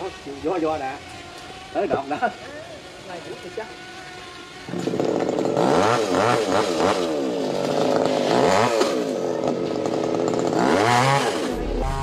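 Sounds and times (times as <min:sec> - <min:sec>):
chainsaw engine revving: 0:03.8 - 0:12.0.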